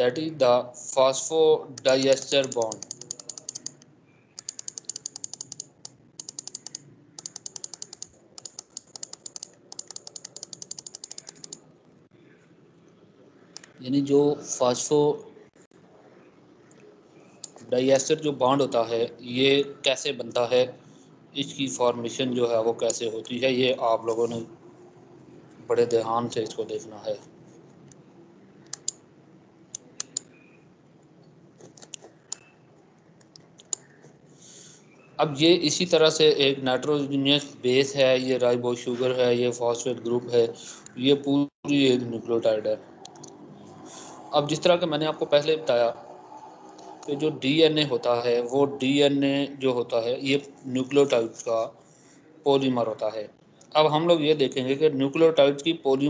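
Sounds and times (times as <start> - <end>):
mouse scroll wheel clicking: 1.8 - 3.8, 4.4 - 11.6, 28.6 - 29.0, 29.8 - 30.4.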